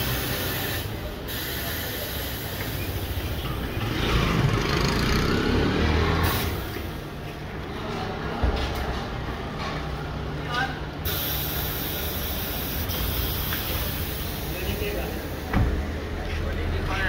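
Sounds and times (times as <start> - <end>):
compressed air hissing: 0.0 - 3.4, 6.2 - 7.0, 11.0 - 15.5.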